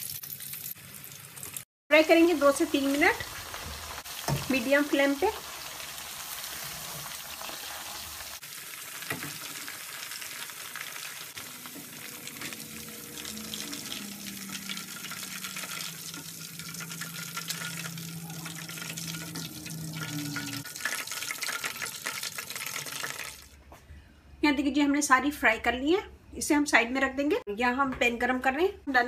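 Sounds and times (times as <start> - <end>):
chicken sizzling in hot oil: 0.0 - 23.6
spoon stirring in oil: 13.2 - 23.4.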